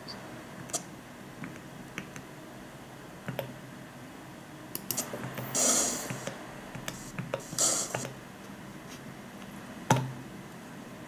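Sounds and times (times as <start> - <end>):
burst of hissing noise: 5.5 - 6.3, 6.9 - 8.0.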